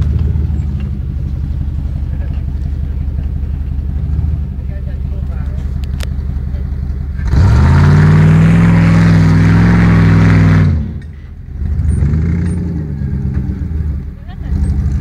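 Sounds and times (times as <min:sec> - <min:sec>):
engine revving hard: 0:07.2 - 0:11.0, 0:11.6 - 0:15.0.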